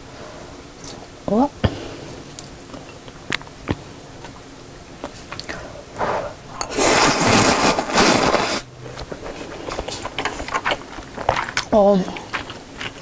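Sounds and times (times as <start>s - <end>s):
person slurping noodles: 6.0s - 8.7s.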